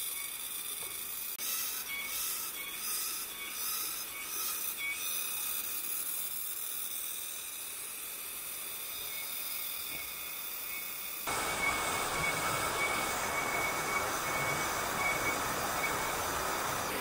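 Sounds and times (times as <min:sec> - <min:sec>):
stream rushing over rocks: 0:11.3 - 0:17.0.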